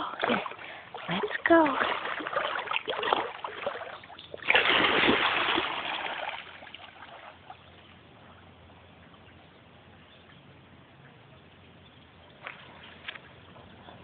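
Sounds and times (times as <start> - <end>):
dog splashing through water: 0.2 - 7.6.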